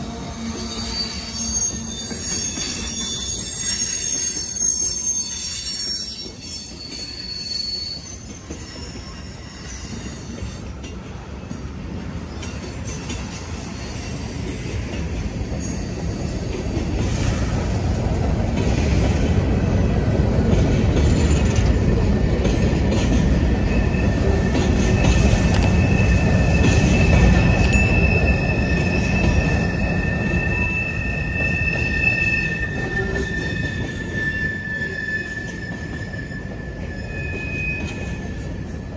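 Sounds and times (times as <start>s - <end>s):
high wheel squeal: 0.0s - 10.7s, 23.5s - 38.9s
train wheels rumbling on rail: 0.0s - 38.9s.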